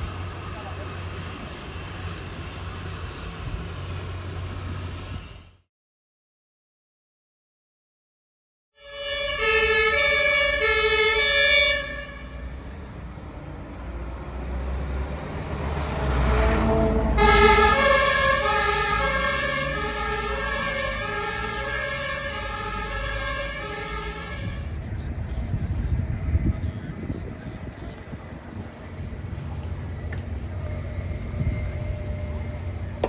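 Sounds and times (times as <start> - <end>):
truck engine and tyres rumbling: 0.0 - 5.7, 8.8 - 33.0
two-tone fire engine siren: 8.8 - 12.8, 15.3 - 24.8, 29.9 - 33.0.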